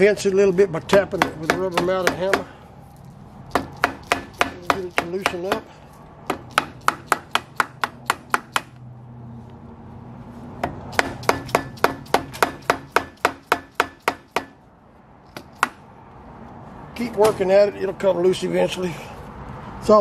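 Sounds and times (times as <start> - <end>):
hammer tapping on metal: 0.9 - 2.5, 3.5 - 8.7, 10.6 - 14.6.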